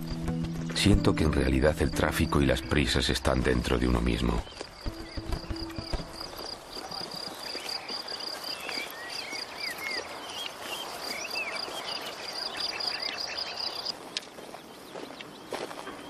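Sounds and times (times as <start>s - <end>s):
crickets chirping: 1.3s - 14.0s
bird calls: 1.5s - 16.0s.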